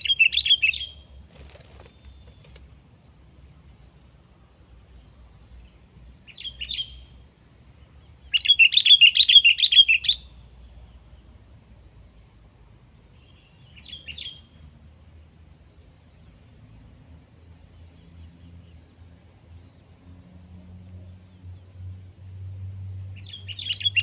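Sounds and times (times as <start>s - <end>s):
bird chirping: 0.0s - 2.6s, 4.9s - 7.2s, 7.8s - 11.3s, 13.1s - 14.7s, 20.8s - 24.0s
faint high-pitched hiss: 0.0s - 24.0s.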